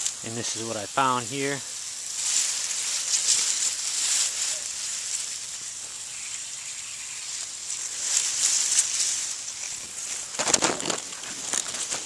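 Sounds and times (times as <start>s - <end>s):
grass rustling against microphone: 0.0s - 12.0s
water hissing from pipe leak: 0.0s - 12.0s.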